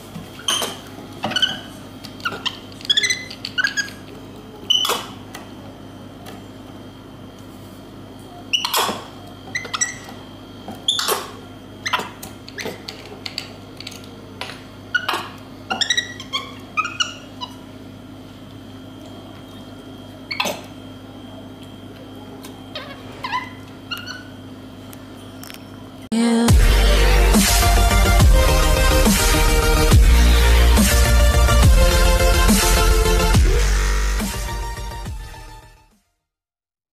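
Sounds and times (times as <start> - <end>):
monkey squeaky chirps: 1.3 - 4.0, 15.0 - 17.6
low hum: 26.2 - 35.8.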